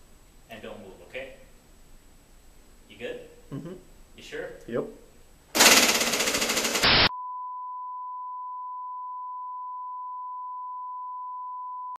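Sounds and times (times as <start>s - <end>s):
toy blaster firing rattle: 5.6s - 7.0s
steady high test tone beep: 7.1s - 11.9s.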